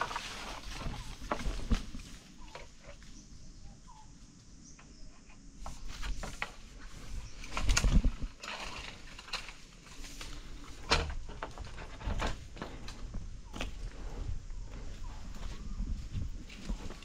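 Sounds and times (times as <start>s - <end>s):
dry leaves and twigs crackling: 0.0s - 4.6s, 5.7s - 17.0s
faint bird calls: 0.2s - 6.4s, 13.0s - 16.1s.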